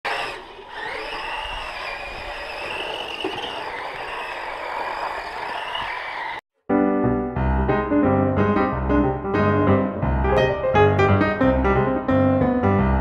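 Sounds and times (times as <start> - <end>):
electric motor whining: 0.1 - 4.7.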